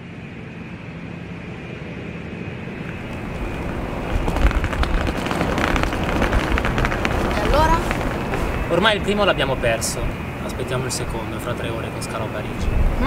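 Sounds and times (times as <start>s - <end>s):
outdoor background rumble: 0.0s - 13.0s
footsteps: 2.7s - 9.0s
wheeled suitcase rolling over paving: 2.7s - 11.8s.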